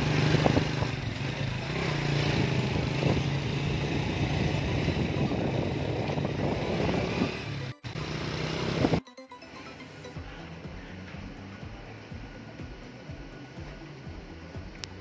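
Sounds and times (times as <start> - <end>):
motorcycle engine running: 0.0 - 9.0, 10.2 - 15.0
wind and road noise: 0.0 - 9.0.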